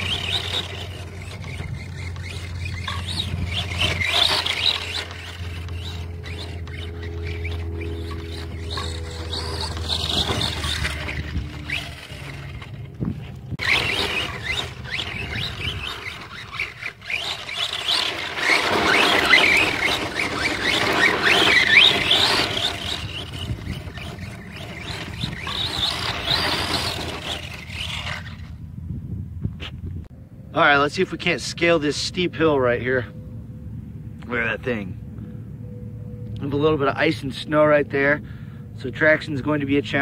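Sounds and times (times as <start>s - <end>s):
tyres scrabbling over loose dirt: 0.0s - 28.6s
electric motor whining: 0.0s - 28.8s.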